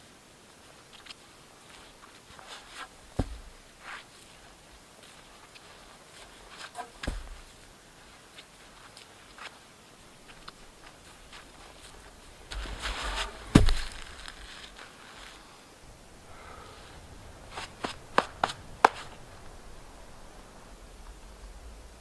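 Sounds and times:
boots crunching through snow: 0:01.6 - 0:15.6, 0:16.8 - 0:19.3
sharp knocks: 0:03.1 - 0:03.6, 0:06.8 - 0:07.5, 0:12.5 - 0:14.5, 0:17.6 - 0:19.2
heavy thud: 0:03.1 - 0:03.7, 0:06.8 - 0:07.6, 0:11.4 - 0:14.8.

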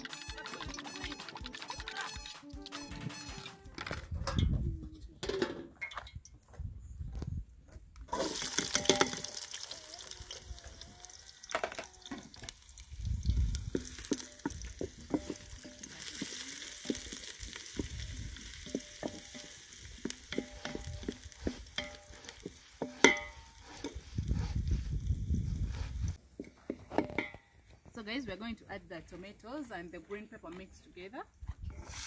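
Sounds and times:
onions sizzling in hot oil: 0:08.1 - 0:26.2
wooden spoon stirring: 0:13.6 - 0:27.2.

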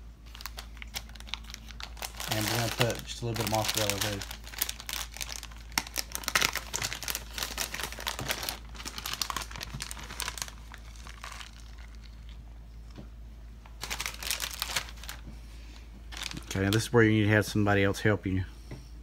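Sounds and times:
plastic bag crinkling: 0:00.2 - 0:12.4, 0:13.7 - 0:15.3, 0:16.1 - 0:17.0.

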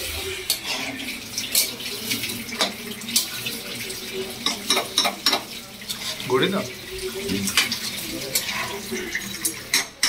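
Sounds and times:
frying sizzle: 0:00.0 - 0:10.0
spatula scraping a pan: 0:00.4 - 0:01.7, 0:04.7 - 0:06.3, 0:08.4 - 0:09.8
spatula clinking against pan: 0:04.4 - 0:05.5.

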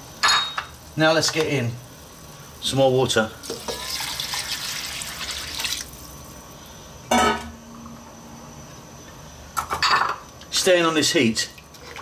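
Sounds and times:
water pouring into pot: 0:03.4 - 0:06.3.

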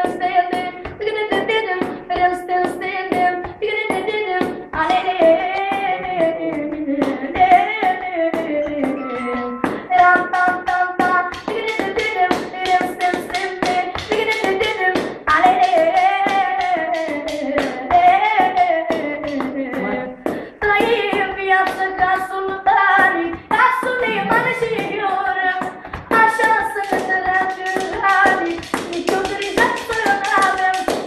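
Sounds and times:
boy singing: 0:00.0 - 0:31.0
quick tapping beat: 0:00.0 - 0:31.0.

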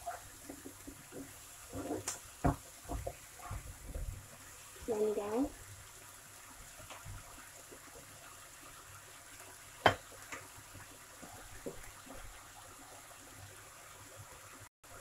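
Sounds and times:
vegetables sizzling in a pan: 0:00.0 - 0:15.0.

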